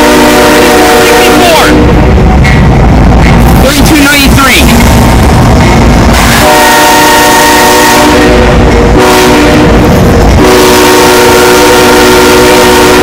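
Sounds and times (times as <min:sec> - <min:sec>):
locomotive air horn blasts: 0:00.0 - 0:02.0, 0:06.4 - 0:13.0
train running past: 0:00.0 - 0:13.0.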